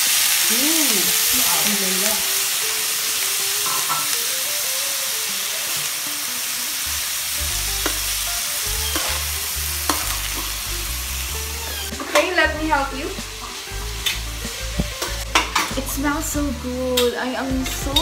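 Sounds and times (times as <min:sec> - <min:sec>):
chicken sizzling in a frying pan: 0:00.0 - 0:18.0
metal spoon scraping a pan: 0:03.6 - 0:04.2, 0:08.8 - 0:10.6, 0:13.4 - 0:15.8.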